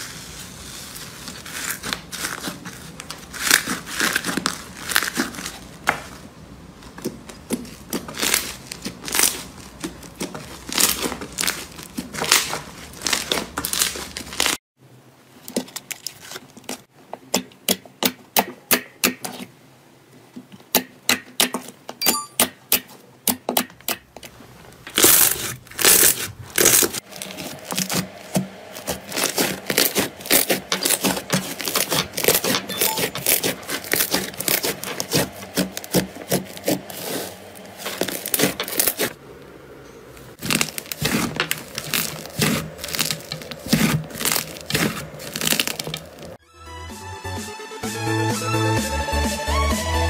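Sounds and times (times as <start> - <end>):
slime crackling and popping: 0.2 - 6.2, 6.8 - 14.6, 28.8 - 39.2, 40.4 - 46.4.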